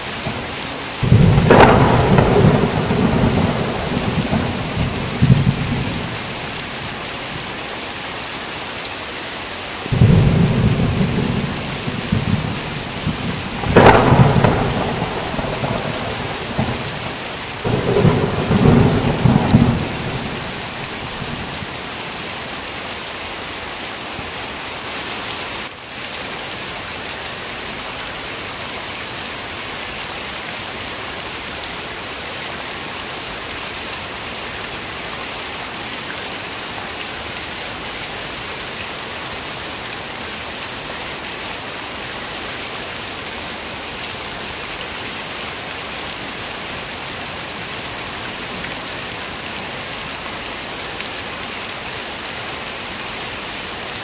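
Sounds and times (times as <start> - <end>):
heavy rain: 0.0 - 54.0
thunder rumbling: 1.0 - 7.0, 9.9 - 21.9.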